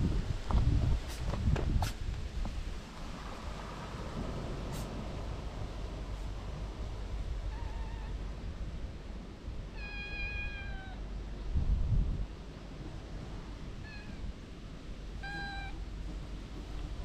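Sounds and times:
kitten meowing: 7.5 - 8.2, 9.8 - 11.0, 13.8 - 14.3, 15.2 - 15.8.

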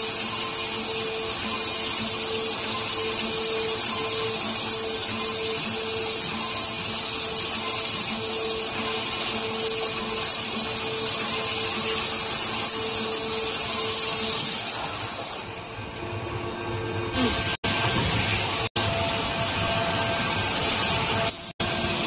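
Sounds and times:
water jet hissing: 0.0 - 16.0.

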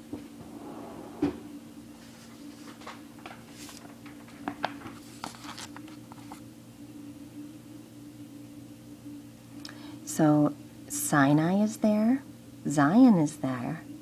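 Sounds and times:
low electrical hum: 0.0 - 14.0
soft thump: 0.4 - 1.5.

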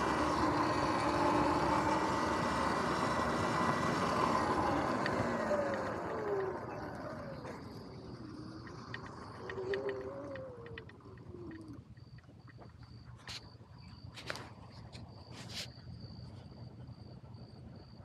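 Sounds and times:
electric motorbike motor whining: 0.0 - 12.3.

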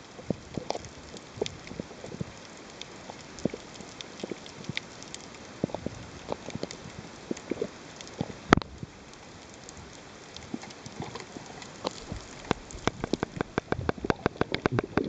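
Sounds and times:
underwater sharp clicks: 10.4 - 15.0.

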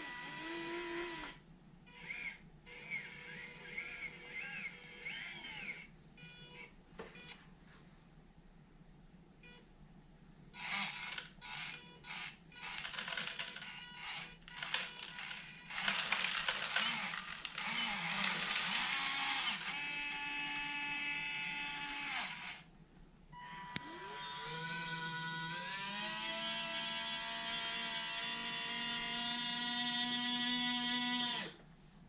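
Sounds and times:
servo motors whining: 2.0 - 5.9, 10.6 - 22.7, 23.4 - 31.6
wooden blocks clattering into plastic: 12.8 - 13.8, 14.5 - 17.6, 18.2 - 19.0.

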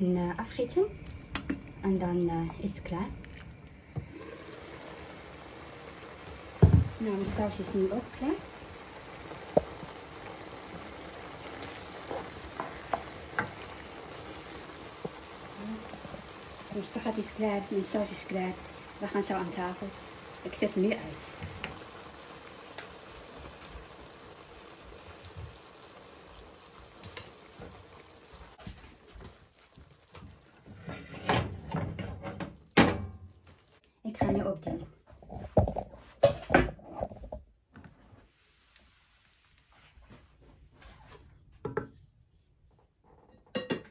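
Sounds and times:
sauce sizzling in a frying pan: 0.0 - 32.8.

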